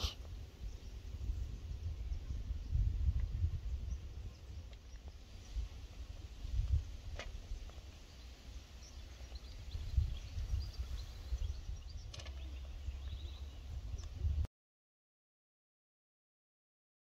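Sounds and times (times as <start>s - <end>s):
wind rumbling on microphone: 0.0s - 14.5s
faint bird chirps: 7.5s - 14.2s.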